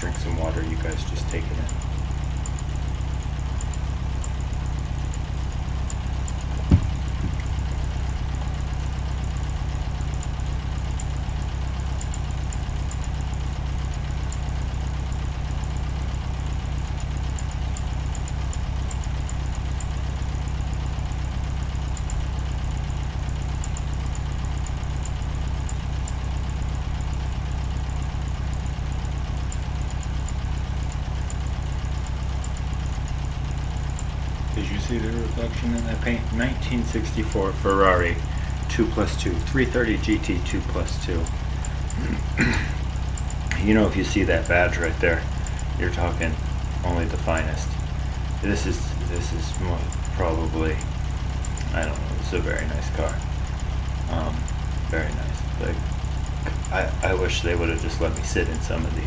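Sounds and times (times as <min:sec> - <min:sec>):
low mechanical hum: 0:00.0 - 0:59.0
sharp knock: 0:06.7 - 0:07.4.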